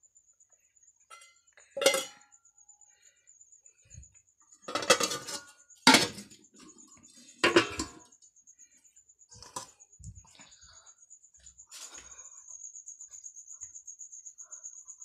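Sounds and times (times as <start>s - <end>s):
steel plates and bowls clattering: 1.1s - 2.2s, 4.7s - 8.1s.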